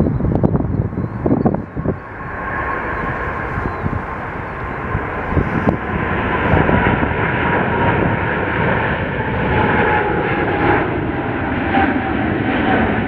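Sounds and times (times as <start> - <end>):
jet engine rumble with whine: 0.0 - 13.0.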